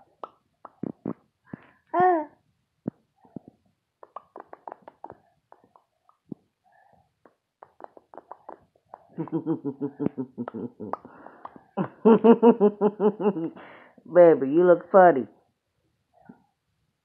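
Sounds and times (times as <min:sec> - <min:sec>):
toddler lip-smacking and popping: 0:00.0 - 0:01.2, 0:02.9 - 0:06.4, 0:07.2 - 0:11.8.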